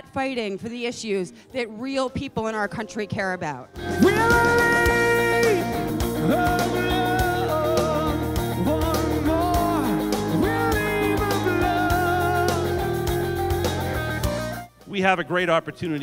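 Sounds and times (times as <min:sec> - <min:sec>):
guitar: 0:02.7 - 0:16.0
steady bass line: 0:03.8 - 0:14.7
person singing long wavering notes: 0:03.9 - 0:13.0.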